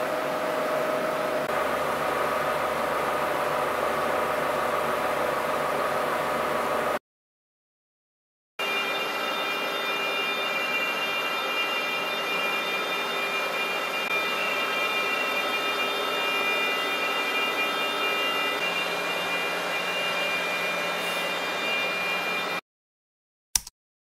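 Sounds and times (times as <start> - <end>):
high machine whining: 0.0 - 7.0, 8.6 - 22.6
low machine hum: 0.0 - 7.0
machinery running: 0.0 - 7.0, 8.6 - 22.6.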